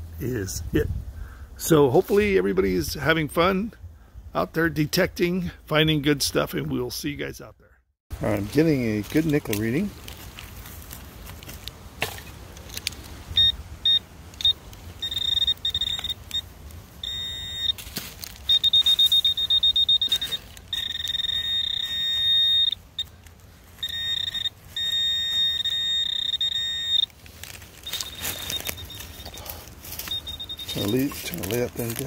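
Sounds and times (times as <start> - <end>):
metal detector beeping: 12.7 - 32.0.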